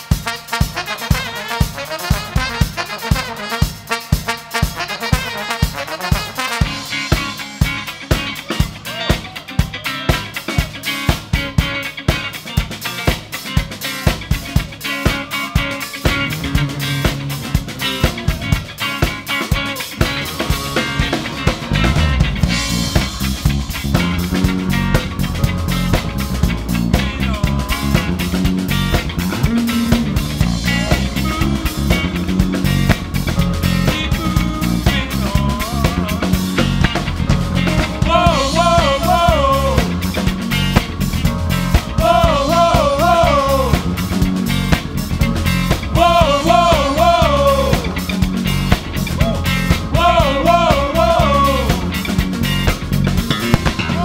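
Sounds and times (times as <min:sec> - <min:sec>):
live funk band playing: 0:00.0 - 0:54.0
man singing: 0:14.4 - 0:16.3, 0:26.7 - 0:30.0, 0:30.6 - 0:32.4, 0:33.8 - 0:40.6, 0:41.8 - 0:44.2, 0:45.8 - 0:48.3, 0:49.1 - 0:52.2, 0:53.6 - 0:54.0.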